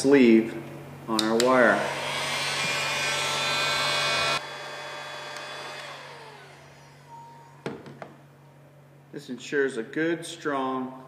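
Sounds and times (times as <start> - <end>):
heat gun blowing with fan whine: 1.2 - 7.2
fan spinning down: 1.2 - 9.2.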